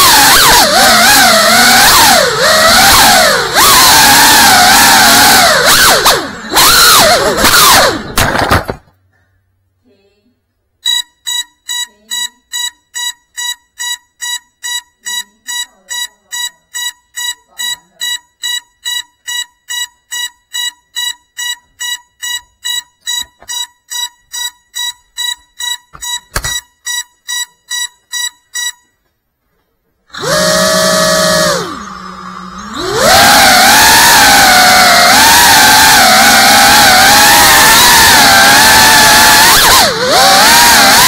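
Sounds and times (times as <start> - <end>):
drone beeping: 0.0 - 8.3, 10.8 - 28.9, 30.2 - 41.0
drone motors whining: 0.0 - 8.8, 30.1 - 41.0.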